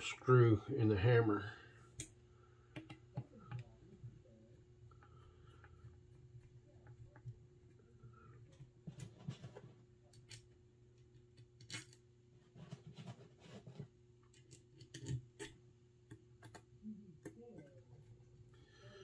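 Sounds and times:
faint steady hum: 0.0 - 19.0
small parts clicking and tapping: 14.2 - 17.9.

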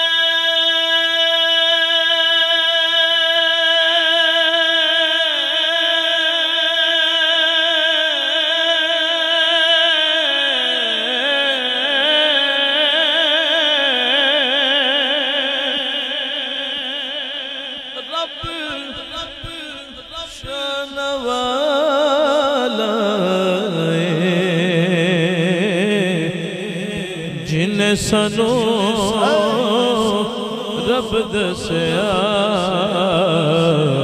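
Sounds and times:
man reciting in melodic chant: 0.0 - 34.0.

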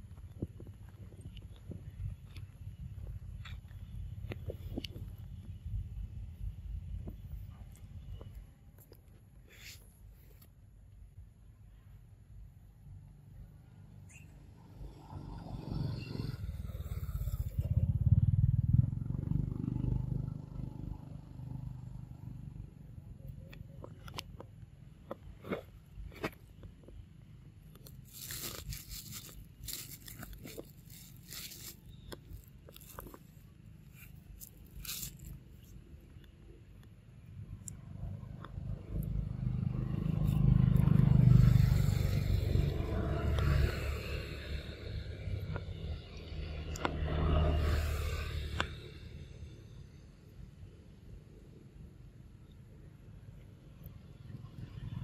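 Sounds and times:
low engine-like rumble: 0.0 - 55.0
vehicle engine passing by: 14.5 - 22.6, 38.0 - 50.0.

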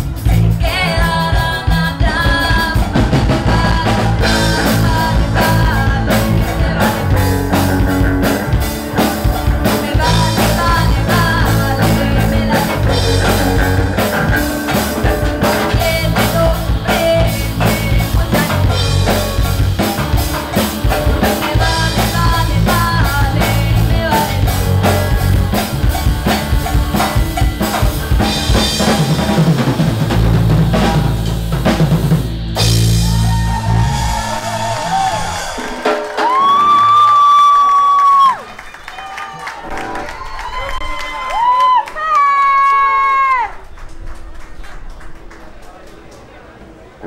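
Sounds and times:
electric guitars: 0.0 - 38.0, 39.5 - 41.5
drum kit beats: 0.0 - 38.4
live rock band: 0.0 - 41.5
woman singing: 0.2 - 8.0, 9.4 - 14.1, 15.3 - 19.4, 20.9 - 26.6.

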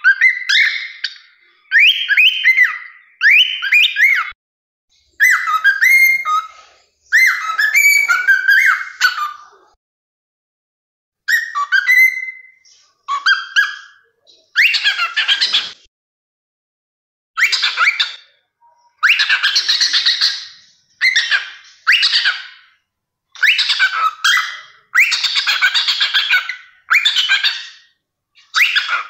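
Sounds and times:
cockatiel whistling: 1.7 - 4.4, 5.2 - 9.4, 11.3 - 14.0, 14.6 - 15.7, 17.4 - 18.2, 18.9 - 22.7, 23.4 - 29.0.

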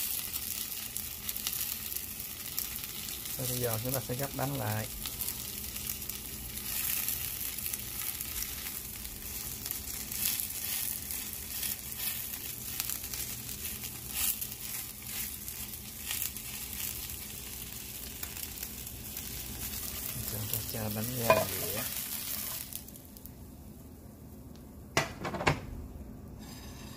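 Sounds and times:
pancake sizzling in oil: 0.0 - 23.4, 26.4 - 26.9
small crackles of frying: 0.0 - 24.8.

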